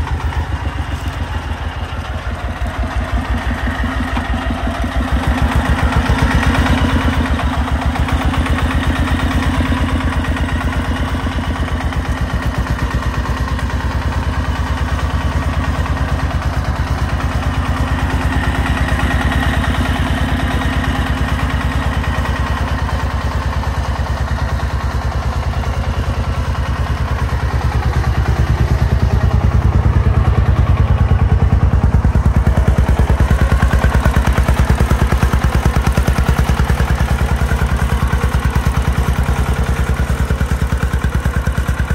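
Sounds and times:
diesel engine chugging: 0.0 - 41.9.

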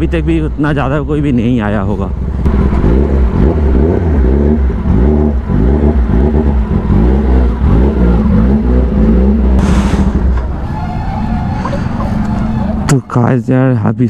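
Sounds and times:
motorcycle engines revving: 2.0 - 13.0
short hiss: 9.6 - 10.2.

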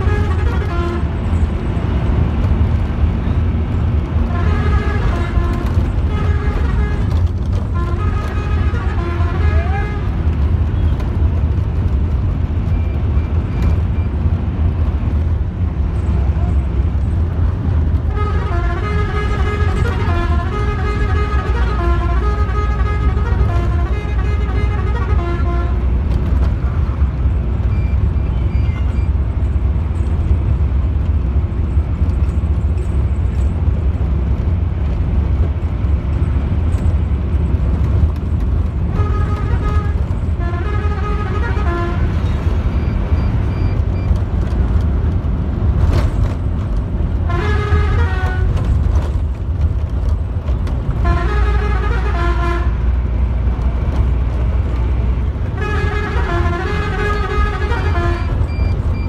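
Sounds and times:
multi-tone horn bursts: 0.0 - 1.2, 4.2 - 10.2, 18.1 - 25.9, 38.9 - 42.7, 47.2 - 48.6, 51.0 - 53.0, 55.5 - 58.6
bus engine droning: 0.0 - 59.0.

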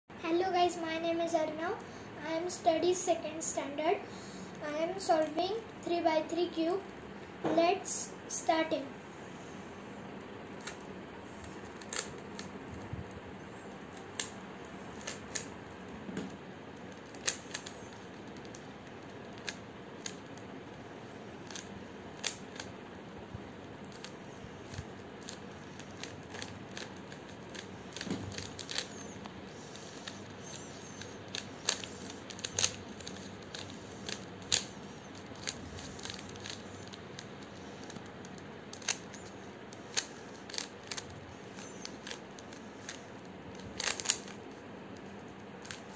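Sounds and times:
puzzle cube plastic clicks: 10.6 - 12.9, 14.0 - 15.6, 16.3 - 22.8, 23.9 - 44.4, 45.0 - 45.9.

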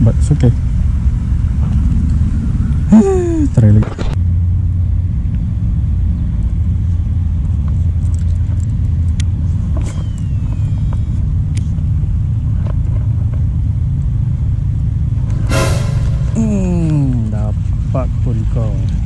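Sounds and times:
low rumble: 0.1 - 7.8, 14.3 - 18.3.

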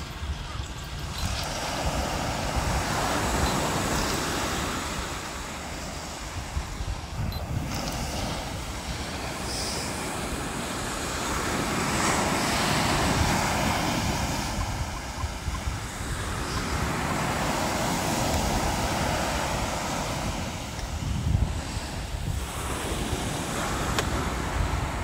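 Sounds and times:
wind on microphone: 0.0 - 25.0
ocean surf breaking: 1.1 - 25.0.

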